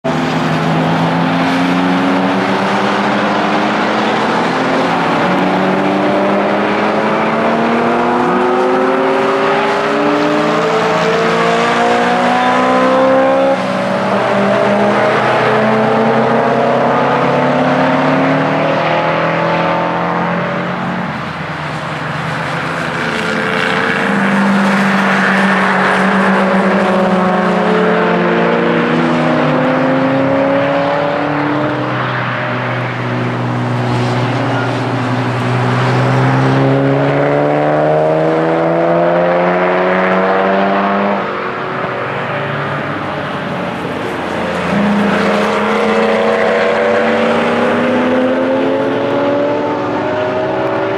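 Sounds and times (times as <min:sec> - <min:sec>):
race car engines accelerating: 0:00.0 - 0:50.9.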